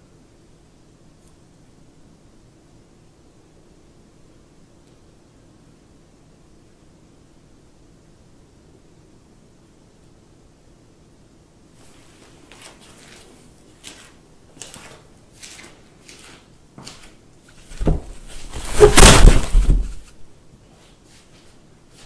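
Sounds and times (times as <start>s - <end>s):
cat paws scratching cardboard: 11.8s - 20.1s
loud rattling bump: 17.9s - 20.0s.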